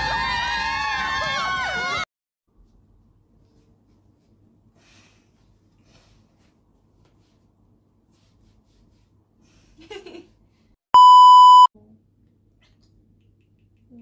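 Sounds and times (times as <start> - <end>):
loud electronic beep: 11.0 - 11.7.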